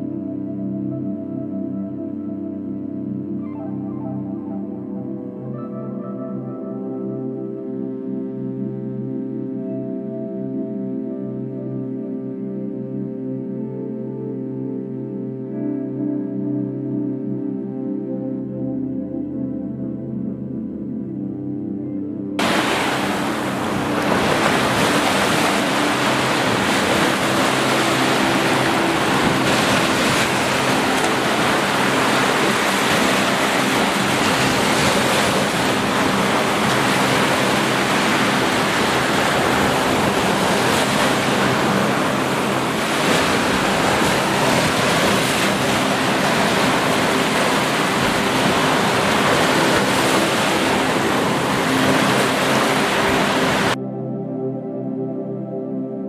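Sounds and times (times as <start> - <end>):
small waves breaking on sand: 22.4 - 53.8.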